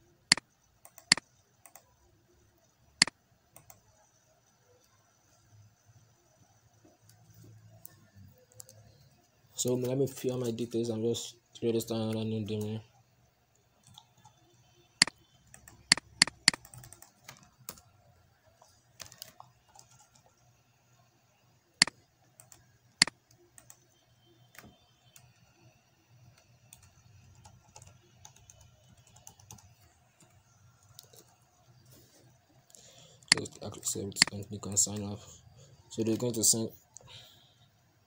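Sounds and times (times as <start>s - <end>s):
faint low hum: 0.0s - 38.0s
typing on keyboard: 0.3s - 2.0s, 3.0s - 3.9s, 15.0s - 17.9s, 18.9s - 20.4s, 21.8s - 25.4s, 26.3s - 31.4s, 33.2s - 35.1s.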